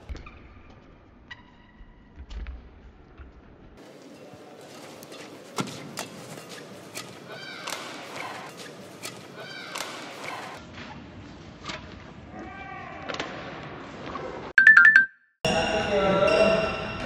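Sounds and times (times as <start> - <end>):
shoes squeaking on court: 3.8 - 11.0
racket hitting shuttlecock: 5.0 - 10.5.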